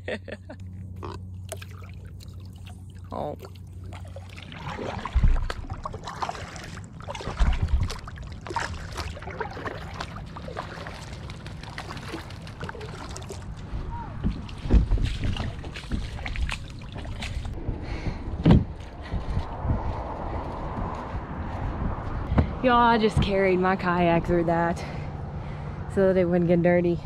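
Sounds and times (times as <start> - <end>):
paddle splashes and drips: 1.4 - 17.6
kayak knocks and thumps: 7.2 - 9.0, 14.1 - 17.6.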